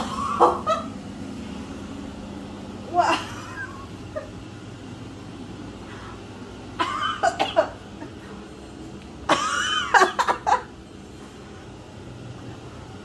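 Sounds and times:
woman coughing and gagging: 0:00.0 - 0:00.9, 0:06.8 - 0:08.2, 0:09.3 - 0:10.7.

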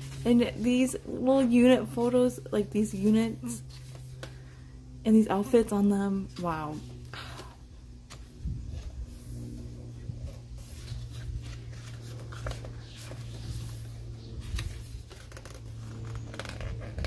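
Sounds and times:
steady low hum: 0:00.0 - 0:17.0
pages turning: 0:03.0 - 0:04.4, 0:06.3 - 0:17.0
paper rustling and flapping: 0:10.0 - 0:17.0.

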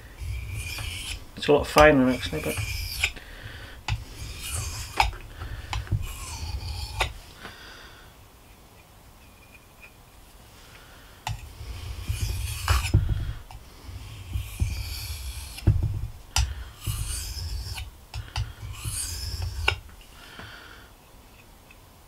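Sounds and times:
knife grinding on whetstone: 0:00.0 - 0:07.2, 0:11.3 - 0:19.8.

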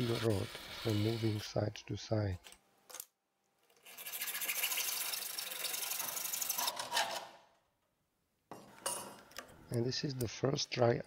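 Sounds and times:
hacksaw sawing steel: 0:00.0 - 0:01.4, 0:05.1 - 0:07.4.

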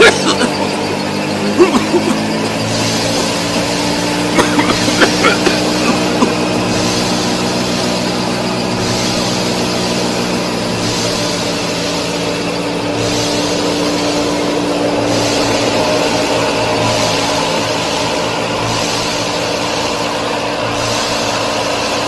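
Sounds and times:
mini tractor engine running: 0:00.0 - 0:22.0.

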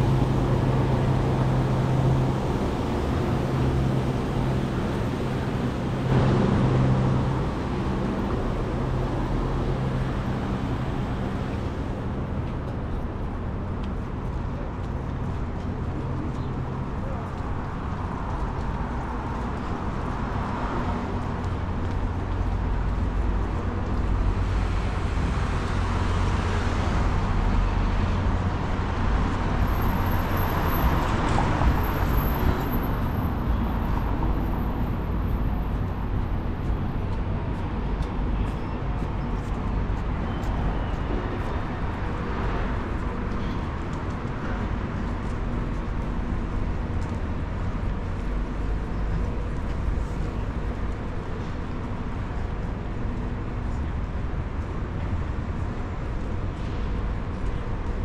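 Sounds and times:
vehicle passing: 0:00.0 - 0:12.2
road traffic rumble: 0:00.0 - 0:58.0.

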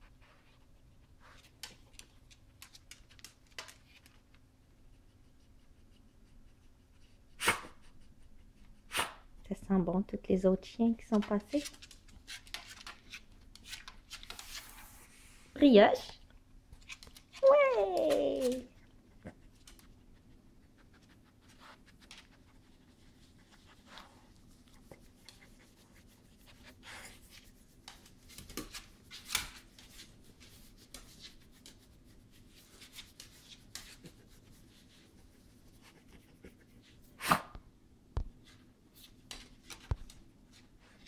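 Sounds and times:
dog claws tapping on tiles: 0:01.4 - 0:04.4, 0:11.2 - 0:14.5, 0:27.8 - 0:30.1.

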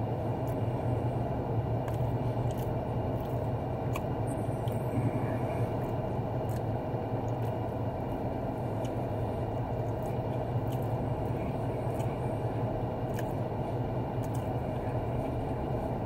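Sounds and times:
car cabin hum: 0:00.0 - 0:16.0
mouth clicks of chewing: 0:13.1 - 0:13.4, 0:14.2 - 0:14.7.

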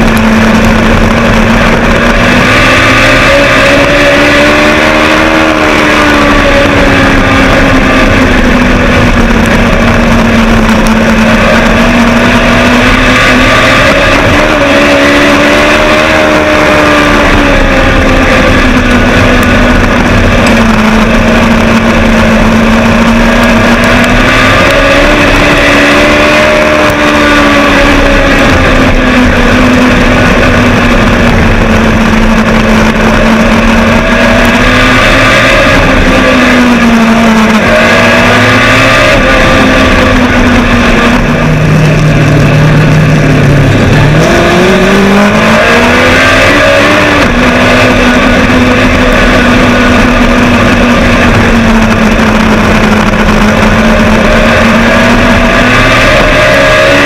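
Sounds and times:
racing engine revving: 0:00.0 - 0:57.0.

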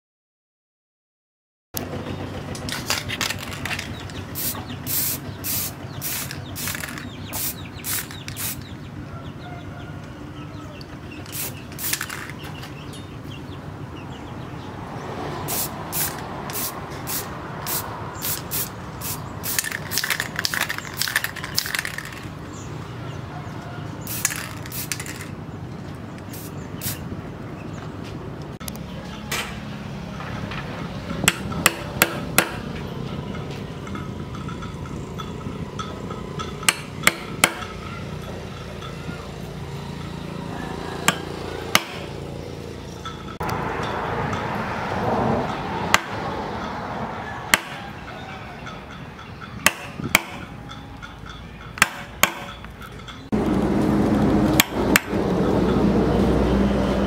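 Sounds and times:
spray paint hiss: 0:04.4 - 0:08.7, 0:11.3 - 0:12.3, 0:15.5 - 0:22.0, 0:24.1 - 0:25.3, 0:26.2 - 0:27.0.

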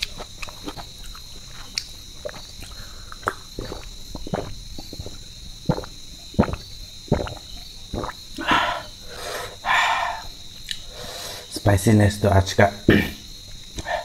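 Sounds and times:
man gulping water: 0:02.2 - 0:08.9
man blowing out hissing breaths: 0:08.4 - 0:11.5.

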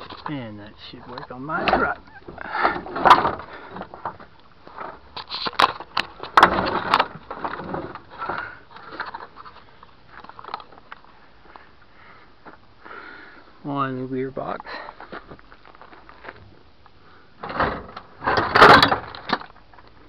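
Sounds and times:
rustling handling noise: 0:00.0 - 0:12.8
knocks and clanks on metal gearbox: 0:06.3 - 0:08.4, 0:17.4 - 0:19.4.

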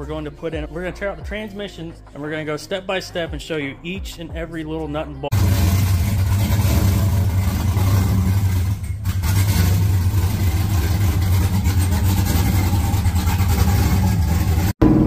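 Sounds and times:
car engine idling: 0:05.3 - 0:15.0.

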